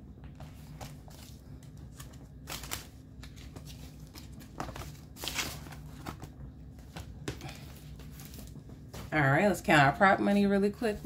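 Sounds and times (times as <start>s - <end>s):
banknotes and plastic rustling: 0.4s - 9.2s.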